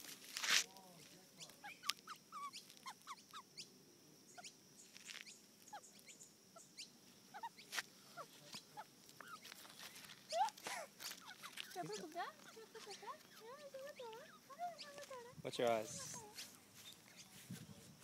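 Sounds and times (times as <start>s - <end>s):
magpie chirps and clicks: 1.4s - 3.7s.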